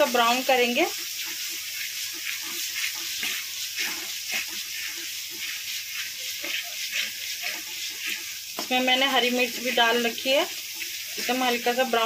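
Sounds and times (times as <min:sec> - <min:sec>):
onion sizzling in oil: 0:00.0 - 0:12.0
spatula scraping wok: 0:00.0 - 0:12.0.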